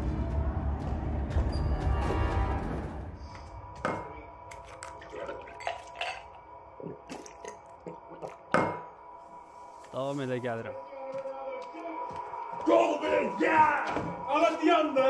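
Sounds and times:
glass and bottle clinking: 3.9s - 6.4s, 7.0s - 8.9s.

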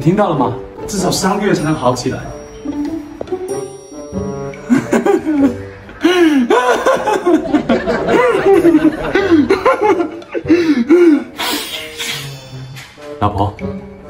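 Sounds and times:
man laughing: 4.6s - 11.4s.

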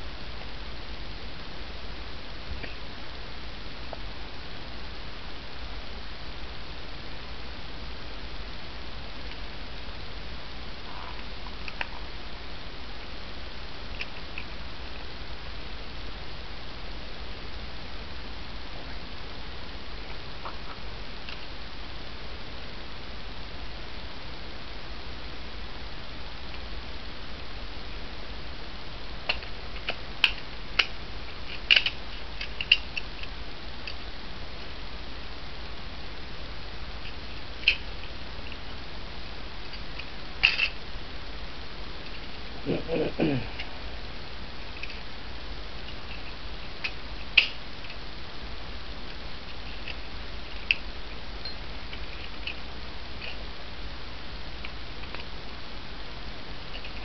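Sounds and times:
low hum and hiss: 0.0s - 57.0s
sharp small clicks: 29.3s - 34.0s, 39.7s - 40.8s.

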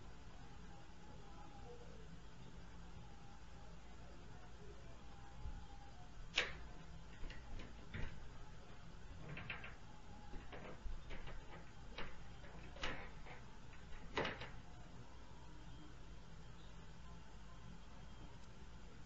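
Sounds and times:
sharp knocks and clicks: 6.3s - 8.3s, 9.2s - 14.6s.

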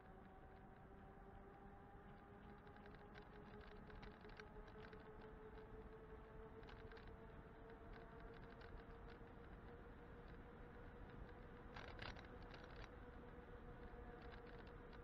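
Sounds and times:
light clicks and rattles: 2.5s - 5.7s, 11.1s - 13.1s, 13.8s - 15.0s.

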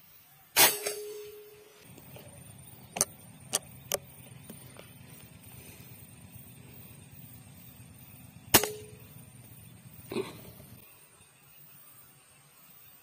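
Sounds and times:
air rifle shot: 0.6s - 1.3s, 8.5s - 9.0s.

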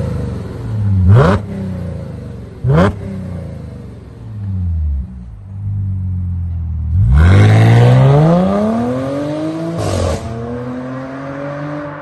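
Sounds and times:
car engine accelerating hard: 6.8s - 12.0s.

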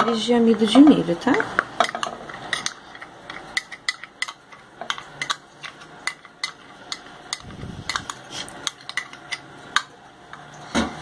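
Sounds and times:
metal spoon scraping a saucepan: 1.8s - 9.5s.

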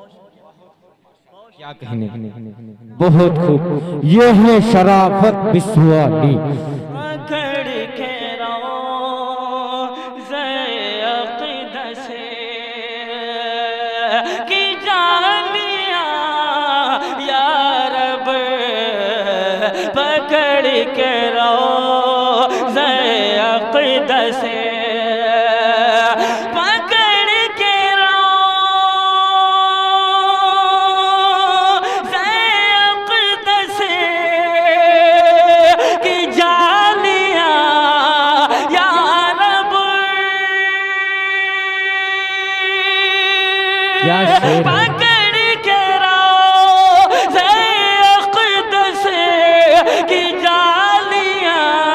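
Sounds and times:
man singing solo: 32.0s - 51.9s.

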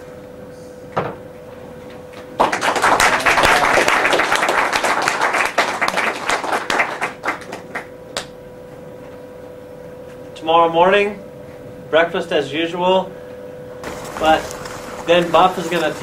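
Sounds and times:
small group applauding: 2.4s - 8.3s.

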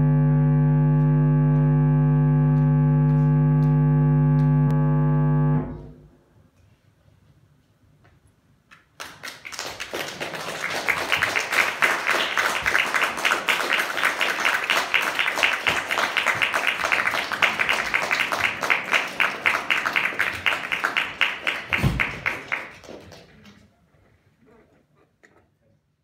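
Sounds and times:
audience applauding: 8.9s - 23.7s.

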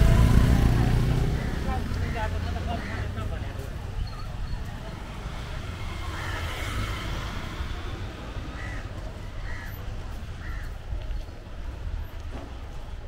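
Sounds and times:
crow cawing: 1.3s - 3.3s, 6.0s - 7.0s, 8.5s - 9.8s, 10.4s - 10.7s.

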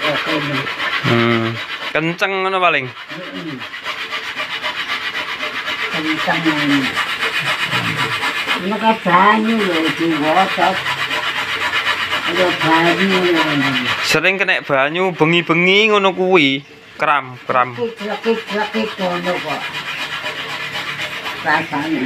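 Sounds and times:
coconut grating scrape: 0.0s - 22.0s
low voices talking: 1.0s - 1.6s, 6.5s - 10.4s.

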